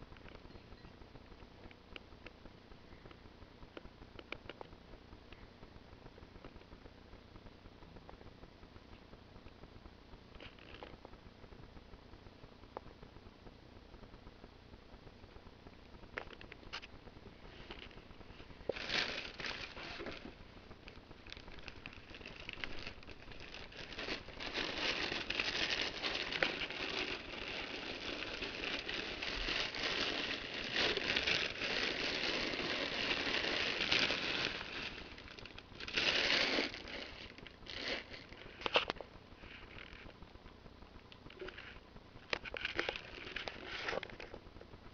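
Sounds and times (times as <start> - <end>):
dry hay rustling and crackling: 17.6 - 20.4, 21.2 - 38.6.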